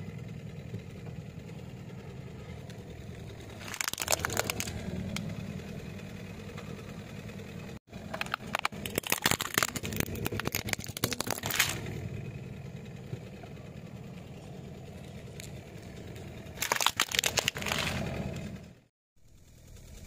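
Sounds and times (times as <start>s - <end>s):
car engine idling: 0.0s - 20.0s
plastic toy cracking under tyre: 3.5s - 5.3s, 8.0s - 11.9s, 16.5s - 18.2s.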